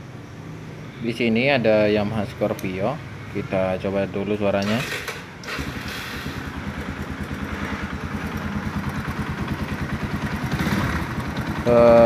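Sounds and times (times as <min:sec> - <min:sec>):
motorcycle engine idling: 0:04.6 - 0:12.0
engine knocking: 0:05.6 - 0:12.0.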